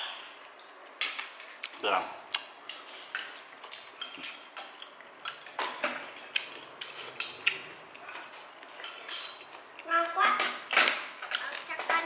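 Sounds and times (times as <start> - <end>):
utensils clinking against dishes: 2.7 - 9.6.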